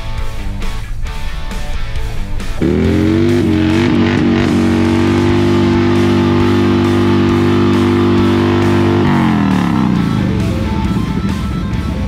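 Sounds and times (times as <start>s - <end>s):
electric guitar sustained chord: 2.6s - 12.0s.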